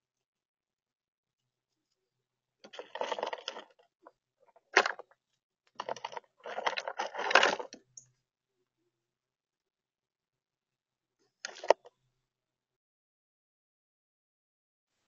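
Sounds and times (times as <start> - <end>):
nuts clattering and rustling: 2.7 - 3.9, 4.6 - 5.1, 5.8 - 7.8.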